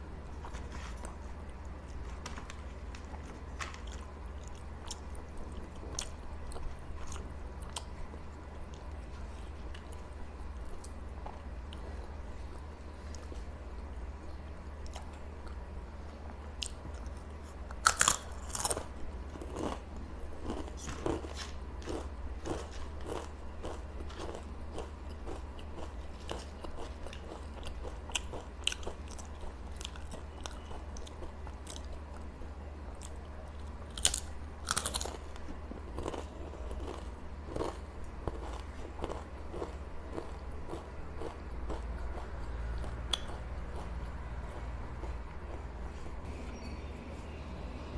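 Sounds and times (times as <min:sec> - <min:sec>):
low steady hum: 0:00.0 - 0:47.9
chewing: 0:33.9 - 0:46.0.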